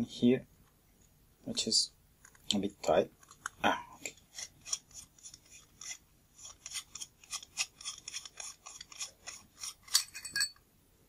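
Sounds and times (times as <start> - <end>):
metal threads scraping: 3.2 - 10.6.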